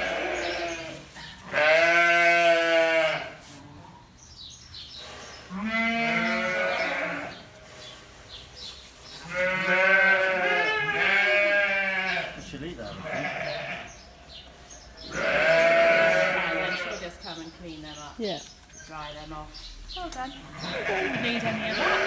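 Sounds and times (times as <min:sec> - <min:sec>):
sheep bleating: 0:00.0 - 0:03.4, 0:05.5 - 0:07.4, 0:09.2 - 0:14.0, 0:15.1 - 0:17.1, 0:20.5 - 0:22.0.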